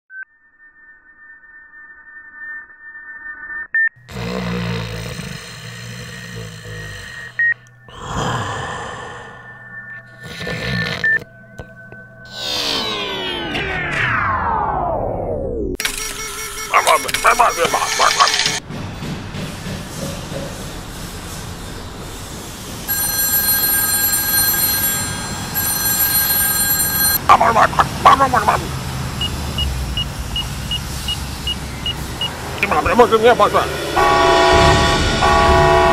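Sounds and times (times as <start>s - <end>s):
breathy noise: 4.1s - 12.1s
telephone ringing: 15.8s - 18.6s, 22.9s - 28.7s
steady electronic tones: 22.9s - 35.9s.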